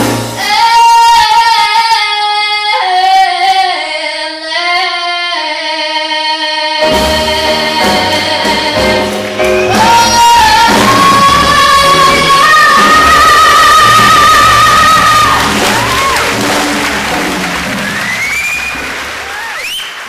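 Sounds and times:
jazz trio playing: 0.0 - 0.6, 6.8 - 19.4
woman singing: 0.4 - 16.2.

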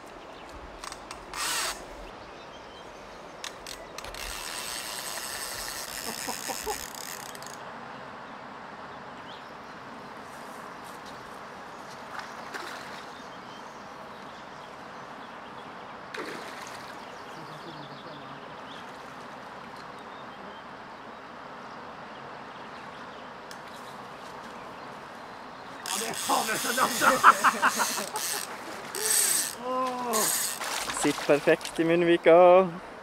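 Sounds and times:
fishing reel drag rattling: 4.0 - 7.6, 25.9 - 30.7.

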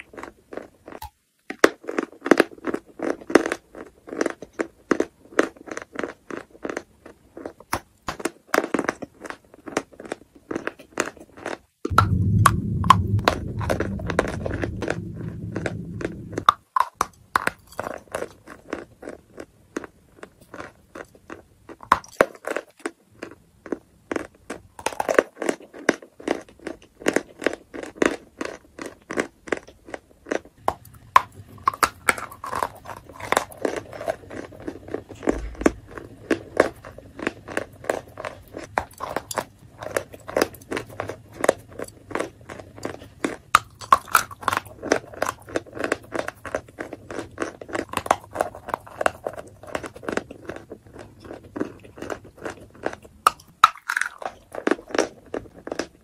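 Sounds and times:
chalk crunching while chewed: 0.0 - 11.7, 13.7 - 56.0
low rumble: 11.9 - 16.5.

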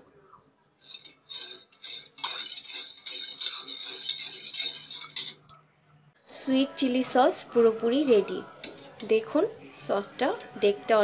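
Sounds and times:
spoon scraping metal pot: 0.8 - 5.6, 8.6 - 9.2.

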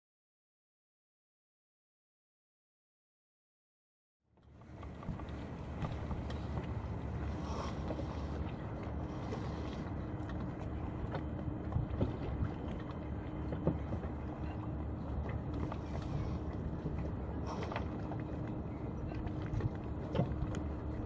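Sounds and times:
water along hull: 4.3 - 21.0
faint steady hum: 4.4 - 21.0.

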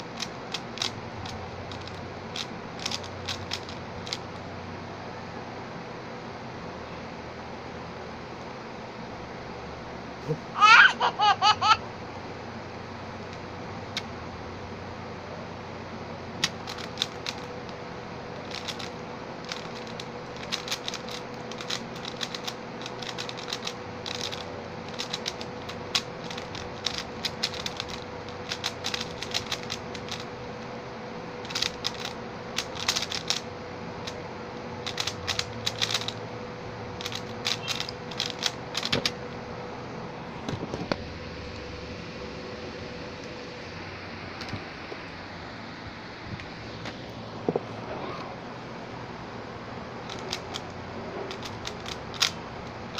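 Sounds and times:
puzzle cube plastic clicks: 0.0 - 4.3, 16.4 - 17.6, 18.4 - 30.3, 31.4 - 34.2, 34.8 - 36.2, 37.0 - 39.2, 50.1 - 50.7, 51.3 - 52.4.

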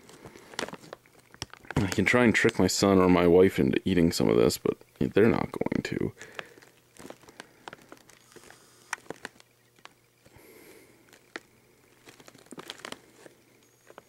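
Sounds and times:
chip bag crinkling: 0.0 - 2.8, 5.6 - 14.0.

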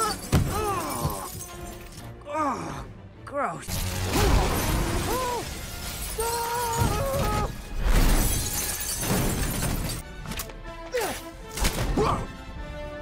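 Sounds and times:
glass shattering: 0.0 - 2.1, 3.7 - 10.0.

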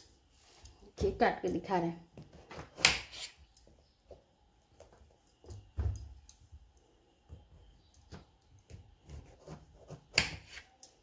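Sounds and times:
knife chopping on wooden board: 2.2 - 3.4, 8.1 - 10.7.

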